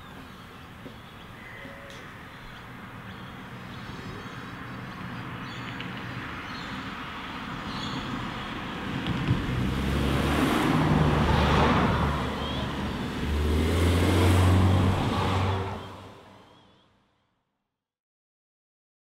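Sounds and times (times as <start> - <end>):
vehicle engine approaching: 3.1 - 16.5.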